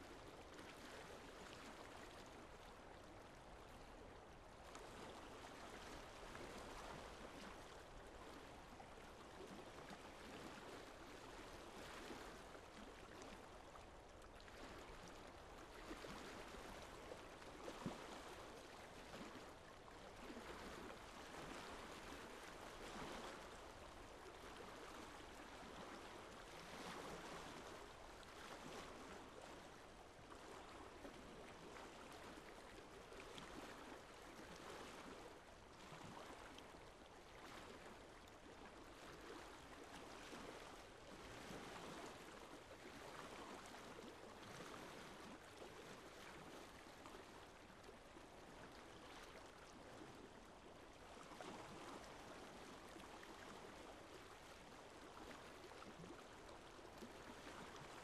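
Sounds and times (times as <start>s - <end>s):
lake water lapping: 0.0s - 58.0s.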